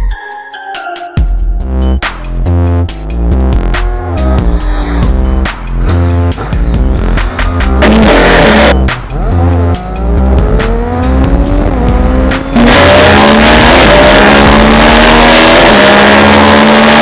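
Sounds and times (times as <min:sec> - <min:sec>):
motorcycle engine revving hard: 0:03.7 - 0:17.0.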